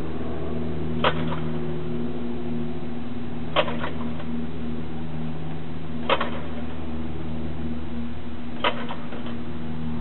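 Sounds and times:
steady low hum: 0.0 - 10.0
engine pops: 1.0 - 1.6, 3.5 - 4.4, 6.0 - 6.7, 8.6 - 9.4.

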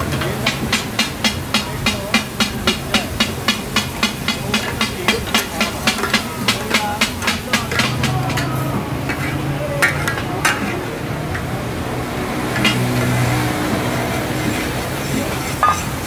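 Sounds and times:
steady sizzle: 0.0 - 16.0
steel spatulas scraping on griddle: 0.1 - 16.0
sharp metal clanks: 15.6 - 16.0.

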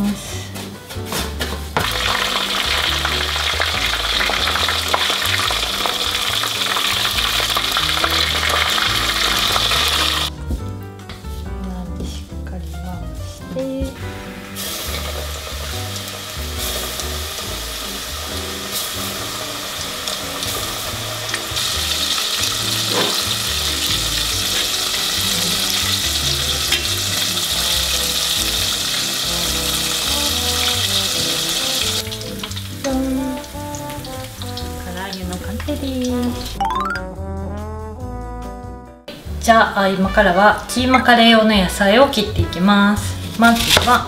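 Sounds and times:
chicken deep-frying in oil: 0.6 - 10.3, 14.0 - 36.8, 39.5 - 44.0.

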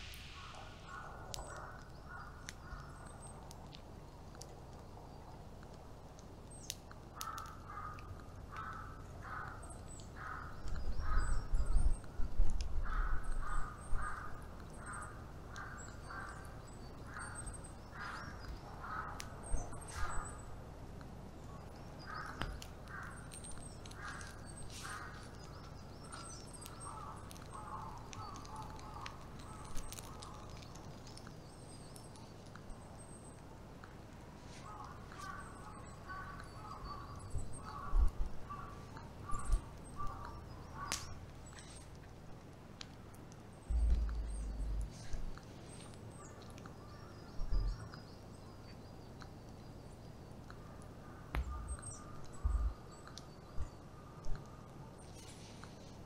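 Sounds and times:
crows cawing: 7.2 - 11.5, 12.8 - 16.5, 17.1 - 19.2, 22.0 - 25.5, 34.6 - 37.0, 37.6 - 41.1
loud low rumble: 43.7 - 45.3.

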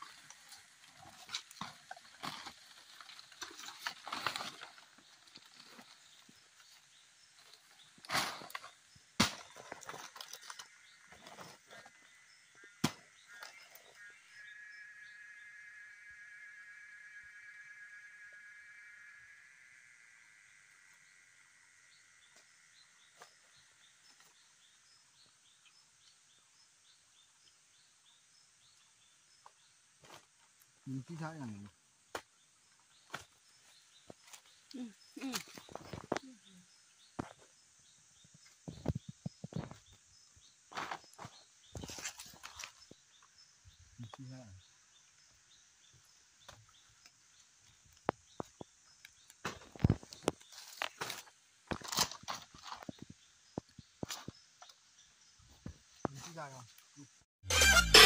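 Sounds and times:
palm fronds and leaves rustling: 0.0 - 15.5, 28.6 - 37.6, 38.4 - 57.1
short high chirps: 57.5 - 58.0.

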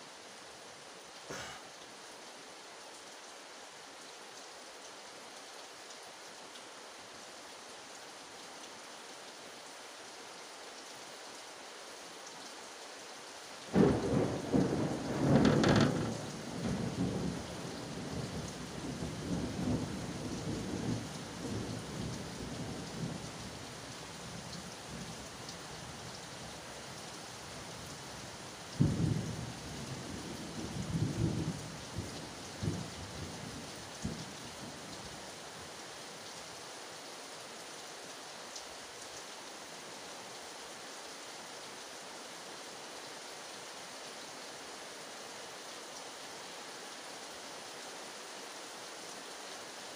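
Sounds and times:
steady rain hiss: 0.0 - 49.9
thunder cracking and rumbling: 13.7 - 20.0.

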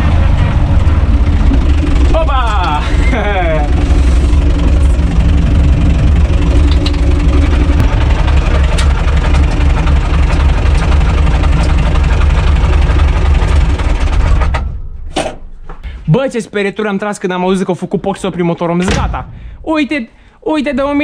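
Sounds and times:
tractor diesel engine running: 0.0 - 15.1.

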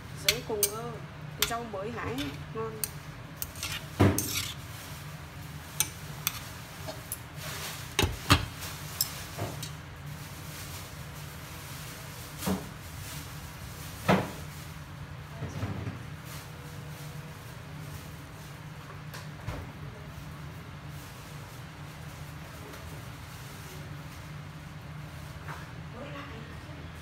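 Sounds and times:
low steady hum: 0.0 - 11.2
chopsticks clicking on metal pot: 0.2 - 0.8.

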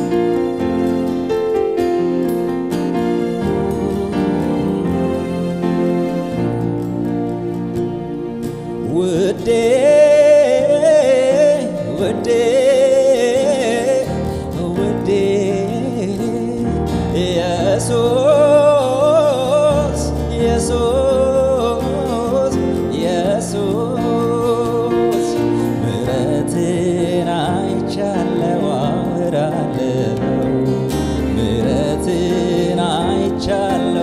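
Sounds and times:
keyboard and acoustic guitar: 0.0 - 34.0
man singing gospel song: 8.8 - 34.0.

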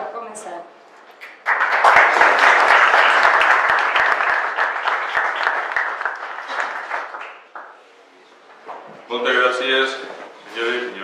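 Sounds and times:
audience applauding: 1.2 - 7.8.

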